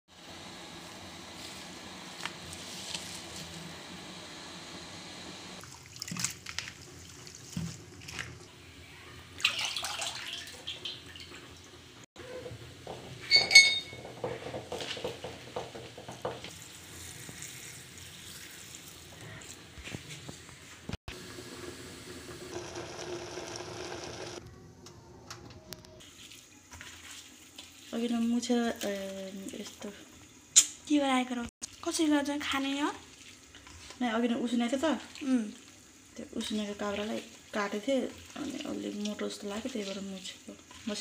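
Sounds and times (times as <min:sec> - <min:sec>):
water running and splashing: 0:05.6 - 0:08.5, 0:09.3 - 0:12.0, 0:15.0 - 0:19.5, 0:26.0 - 0:30.5, 0:31.7 - 0:41.0
ringing clink: 0:13.3 - 0:14.0.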